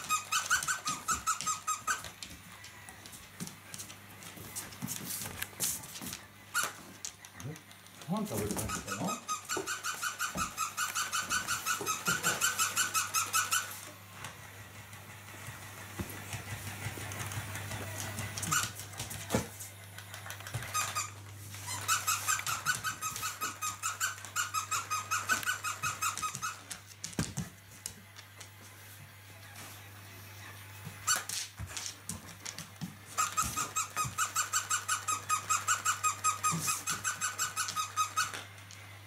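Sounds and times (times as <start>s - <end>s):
dog toy squeaker squeaking: 0.0s - 2.2s, 6.5s - 6.8s, 8.5s - 13.8s, 18.4s - 18.8s, 20.5s - 26.8s, 33.1s - 38.5s.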